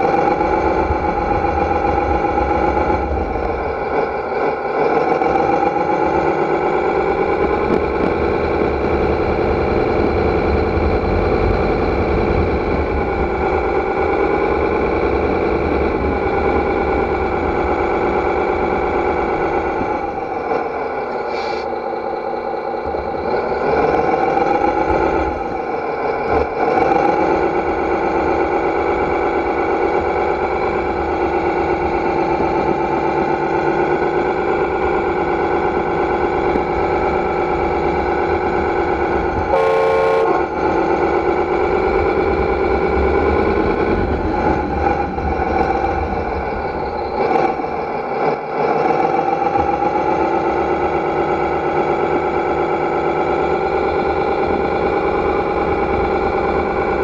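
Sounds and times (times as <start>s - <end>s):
simulated diesel engine sound: 0.0s - 57.0s
horn blast with hiss: 39.5s - 40.5s.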